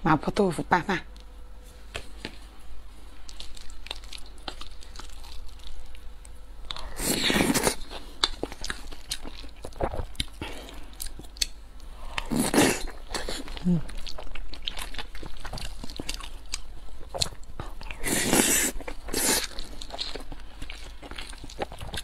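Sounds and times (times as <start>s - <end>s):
wet chewing clicks: 3.2s - 6.0s, 6.6s - 11.6s, 12.2s - 22.0s.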